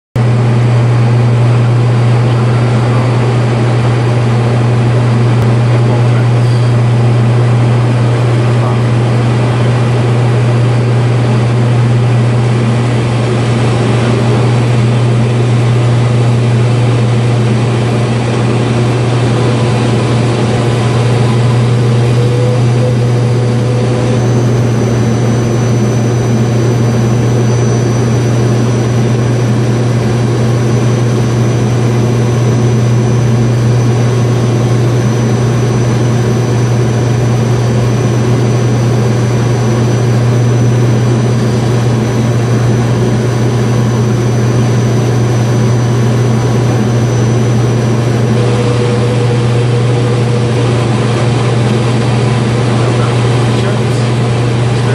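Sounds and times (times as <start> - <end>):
propellers humming: 0.2 - 54.9
engine and air rushing: 37.3 - 54.9.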